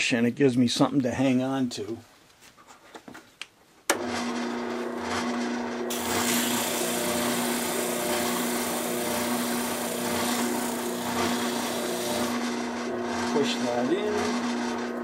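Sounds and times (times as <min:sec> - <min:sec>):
spindle sander motor hum: 0:05.3 - 0:15.0
wood rasping on sanding drum: 0:05.9 - 0:12.6.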